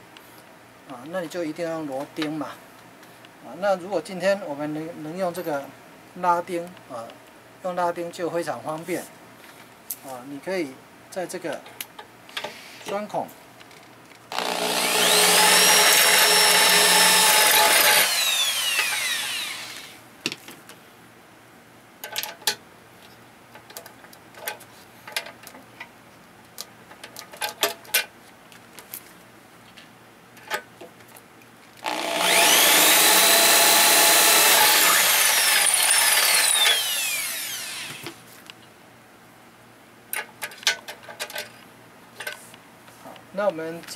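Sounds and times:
electric drill whine: 14.3 - 20.0, 31.8 - 38.2
clicks and knocks of handling: 22.0 - 29.1, 40.1 - 43.9.

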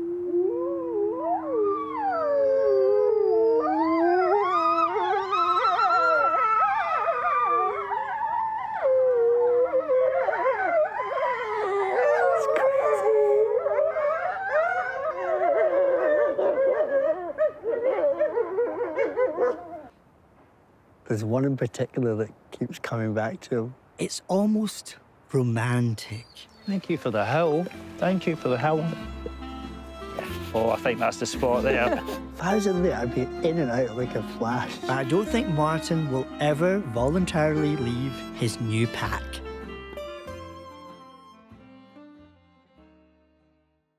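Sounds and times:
wolves howling in chorus: 0.0 - 19.9.

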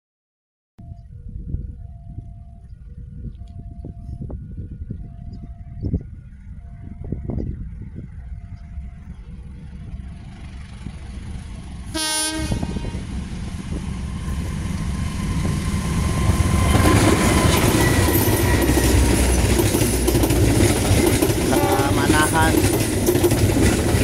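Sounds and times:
train engine: 6.0 - 24.0
train wheels on rails: 8.5 - 24.0
locomotive horn blast: 11.9 - 13.1, 21.4 - 22.4.

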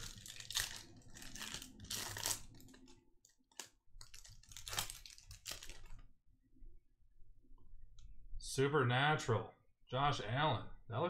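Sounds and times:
foil wrapper crinkling: 0.0 - 6.1.

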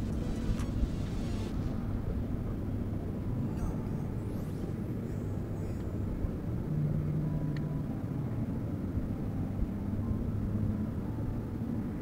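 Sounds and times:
electric motor low hum: 0.0 - 7.8.

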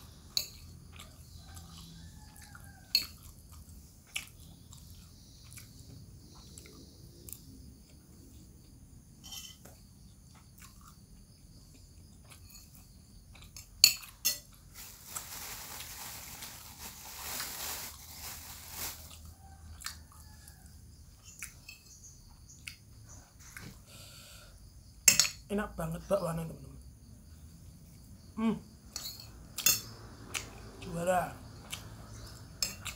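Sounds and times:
person chewing food: 0.0 - 8.8, 9.7 - 14.7
metal spoon clinking against bowl: 25.1 - 25.4, 29.0 - 29.9.

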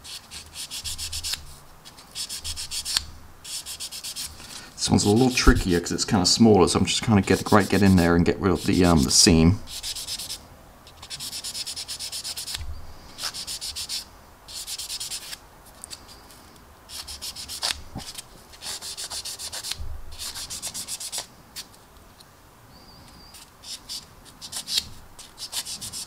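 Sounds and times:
sanding stick rubbing plastic: 0.0 - 4.3, 5.0 - 5.5, 7.2 - 10.4, 11.0 - 12.6, 13.2 - 15.4, 16.9 - 21.3, 23.3 - 26.0.

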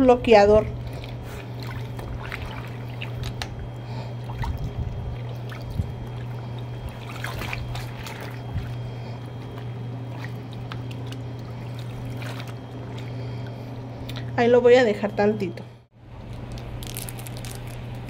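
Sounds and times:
water sloshing and trickling: 0.0 - 14.3
steady low hum: 0.0 - 18.0
small splashes: 0.8 - 14.2.

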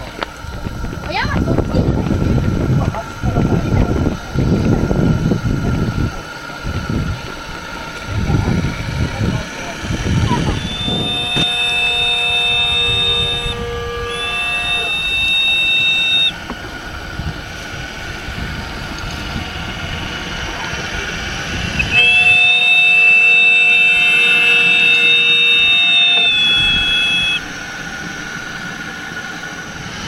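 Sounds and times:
ship's steam whistle blasts: 9.8 - 16.5, 21.6 - 28.5.

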